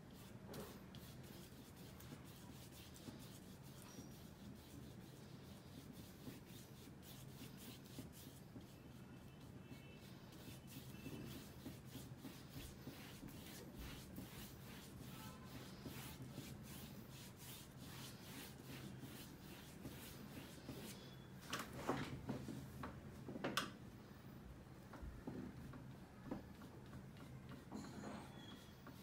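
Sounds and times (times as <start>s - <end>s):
paintbrush scratchy strokes: 0.0s - 21.2s.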